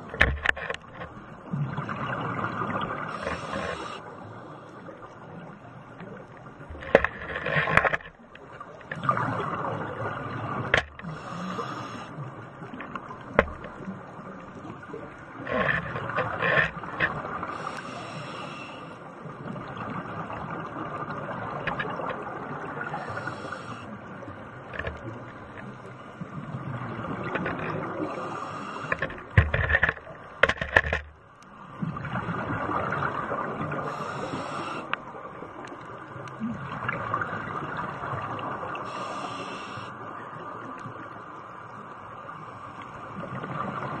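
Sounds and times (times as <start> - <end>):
regulator inhale hiss: 3.1 - 4.9, 11.0 - 12.2, 17.5 - 19.1, 23.0 - 23.9, 28.0 - 29.1, 33.8 - 35.0, 38.8 - 40.0.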